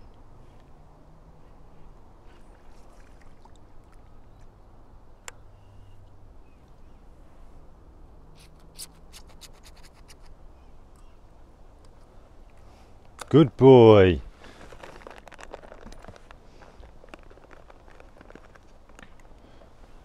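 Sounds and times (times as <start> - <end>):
scratchy handling noise: 14.5 - 19.4.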